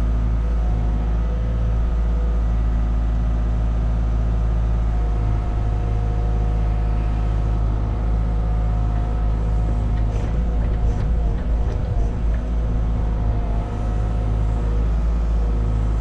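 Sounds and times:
diesel engine drone: 0.0 - 16.0
hydraulics whine: 4.8 - 16.0.

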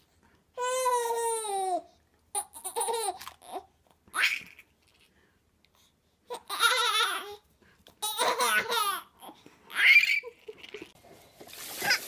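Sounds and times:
baby laughing: 0.6 - 4.6, 6.3 - 7.4, 8.0 - 11.0.

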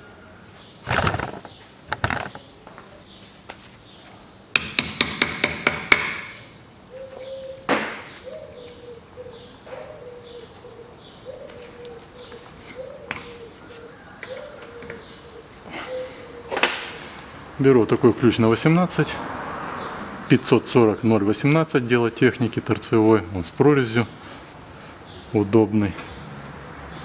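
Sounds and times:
tool knocking on metal: 4.6 - 6.3.

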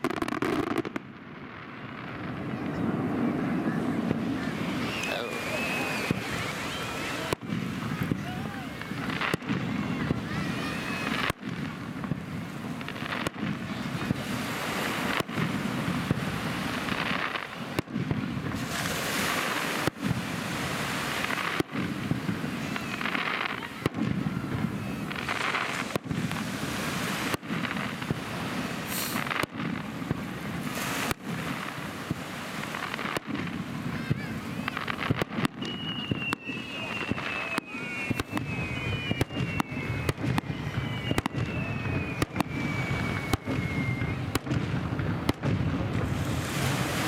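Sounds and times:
firework shells bursting: 0.0 - 1.2, 28.8 - 33.6.

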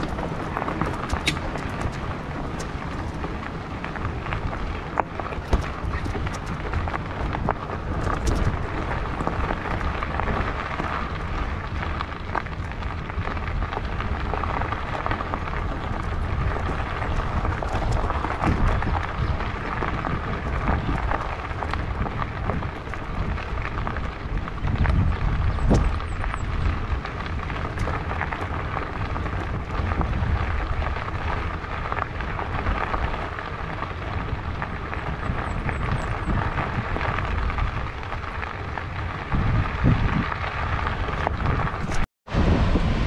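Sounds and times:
tyres crunching on gravel: 0.0 - 43.0
low rumble: 36.4 - 43.0.

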